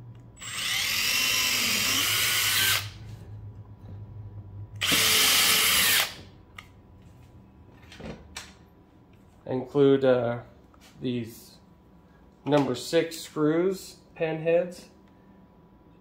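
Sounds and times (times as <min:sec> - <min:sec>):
cordless drill drilling plastic: 0:00.4 - 0:03.0, 0:04.8 - 0:06.2.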